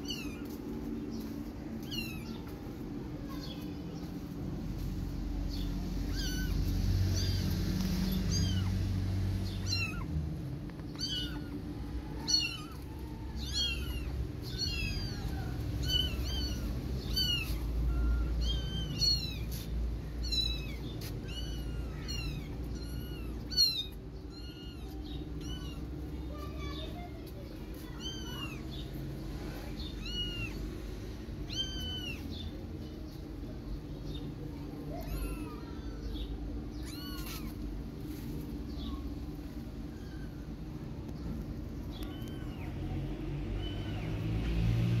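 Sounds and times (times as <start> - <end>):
kittens mewing: 5.6 - 10.1, 10.8 - 26.8, 27.8 - 28.8, 29.8 - 30.8, 31.4 - 32.4, 34.8 - 38.2.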